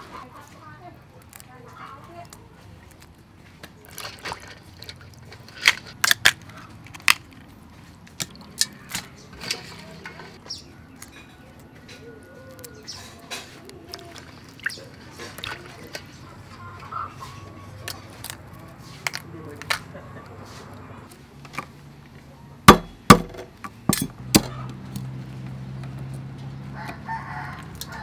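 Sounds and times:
crab shells clicking and cracking: 0:00.9 - 0:09.8, 0:10.4 - 0:16.9, 0:17.8 - 0:19.9, 0:26.0 - 0:28.0
faint bird calls: 0:10.4 - 0:18.7.

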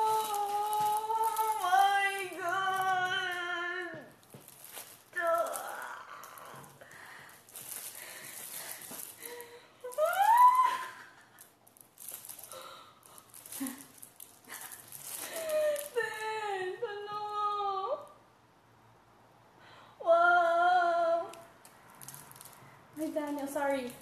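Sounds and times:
plastic wrapping rustling: 0:00.0 - 0:16.8, 0:21.2 - 0:24.0
woman squealing: 0:09.3 - 0:11.2.

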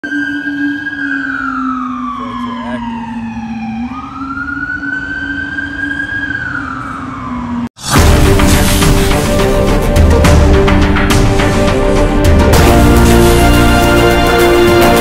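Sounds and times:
siren wailing: 0:00.0 - 0:08.0
loud music: 0:07.8 - 0:15.0.

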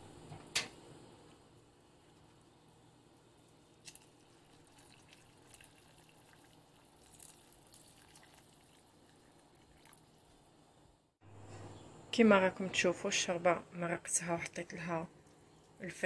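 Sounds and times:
water pouring into a pot: 0:03.5 - 0:10.5.

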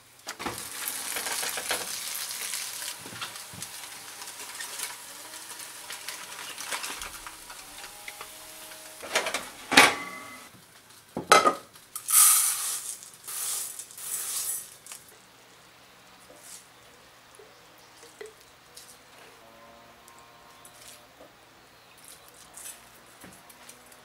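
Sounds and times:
scraping: 0:00.3 - 0:10.5
food sizzling in frying pan: 0:00.4 - 0:11.0, 0:11.7 - 0:14.9.

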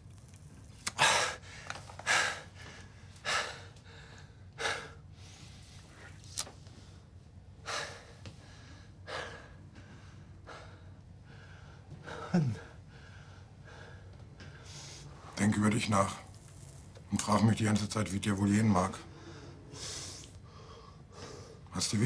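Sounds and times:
sharp hissing breaths: 0:19.1 - 0:21.7.

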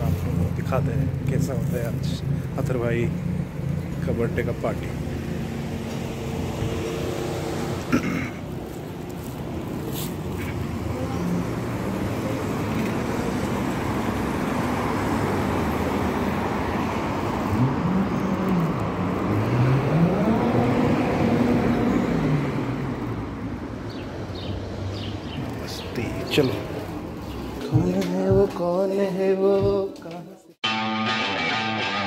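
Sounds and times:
passing cars: 0:00.0 - 0:28.7.

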